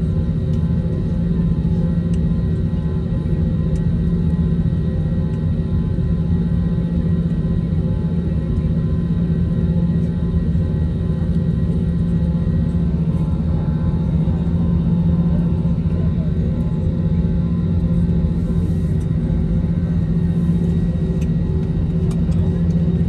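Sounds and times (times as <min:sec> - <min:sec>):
jet engines at low power: 0:00.0 - 0:23.0
aircraft cabin hum: 0:00.1 - 0:23.0.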